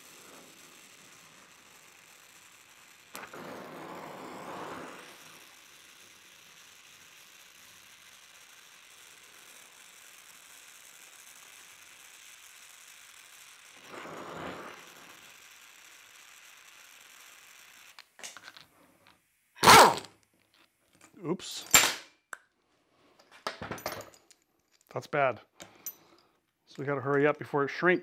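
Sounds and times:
gas torch flame hissing: 0.0s - 20.1s.

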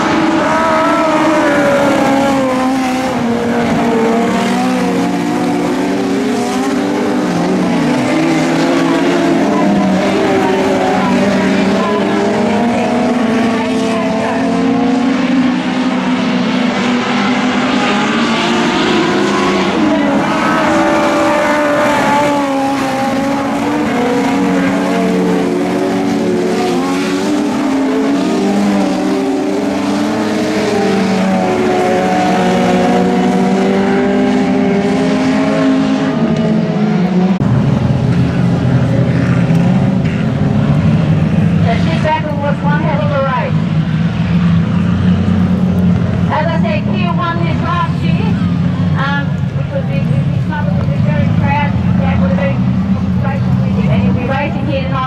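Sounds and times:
deeper engine close by: 0.0s - 55.0s
race car engines: 0.0s - 55.0s.

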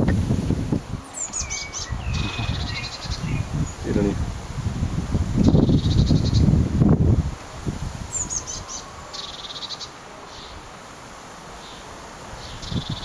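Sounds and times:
wind buffeting microphone: 0.0s - 9.2s, 12.2s - 13.0s
blue tit calls: 1.0s - 4.0s, 5.4s - 6.5s, 8.1s - 10.6s, 11.6s - 13.0s.

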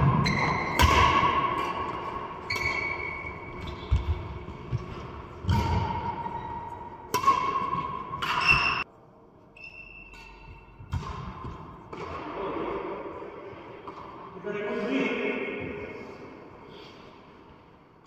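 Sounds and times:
rackets hitting shuttlecock: 0.0s - 8.9s, 10.0s - 14.3s.

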